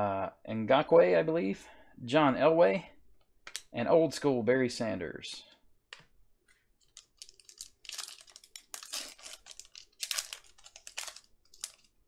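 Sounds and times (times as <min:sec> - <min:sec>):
foil wrapper crinkling and tearing: 0:06.8 - 0:12.0.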